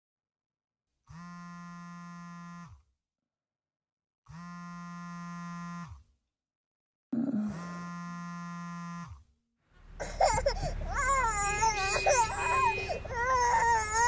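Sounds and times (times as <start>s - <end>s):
phone vibrating on wooden desk: 1.1s - 2.9s, 4.3s - 6.1s, 7.2s - 9.3s.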